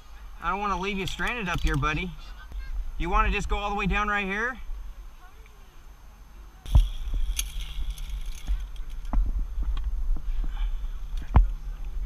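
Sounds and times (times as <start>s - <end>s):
steady low rumble: 5.8s - 12.0s.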